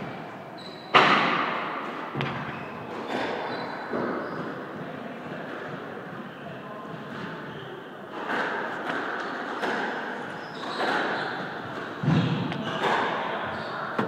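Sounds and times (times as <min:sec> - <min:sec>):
squash ball hitting rackets and walls: 0:00.9 - 0:06.2, 0:08.1 - 0:13.3.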